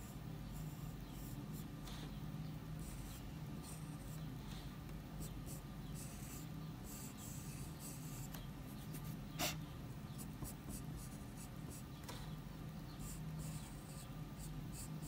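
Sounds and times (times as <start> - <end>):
pencil sketching on paper: 0.0 - 2.1, 2.8 - 8.3, 13.0 - 15.0.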